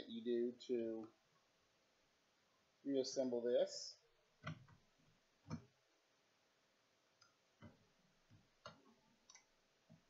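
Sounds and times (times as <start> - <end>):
faint clicks and taps on metal and plastic: 4.4 - 5.8, 7.1 - 10.0.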